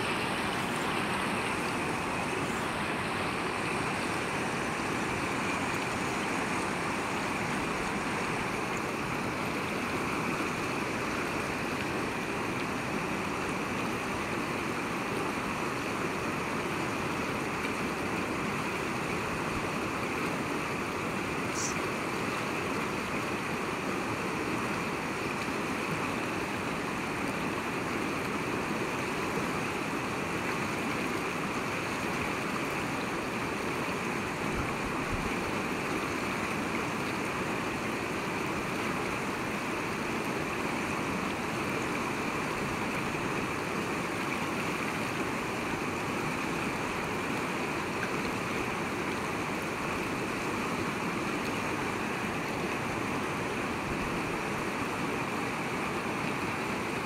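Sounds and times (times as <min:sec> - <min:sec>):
river rapids rushing over rocks: 0:00.0 - 0:57.0.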